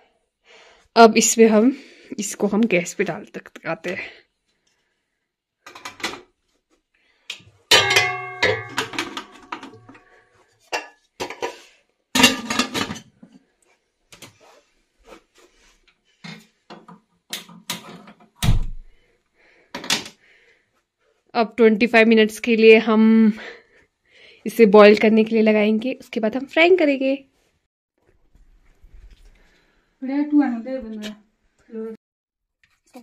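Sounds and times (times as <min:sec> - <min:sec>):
metal pot and lid clanking: 0:07.7 - 0:11.6, 0:12.2 - 0:13.1.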